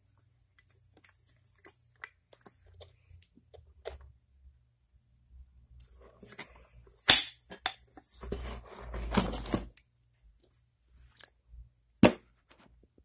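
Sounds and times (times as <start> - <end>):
rustling and scraping: 5.8 - 9.8.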